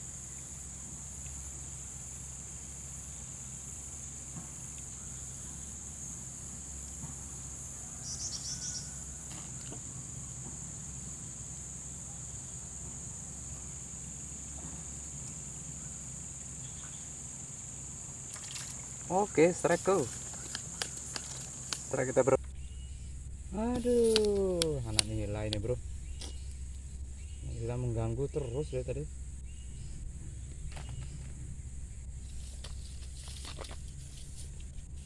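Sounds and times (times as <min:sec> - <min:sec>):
insects chirring: 0:00.0 - 0:35.0
low steady hum: 0:00.0 - 0:35.0.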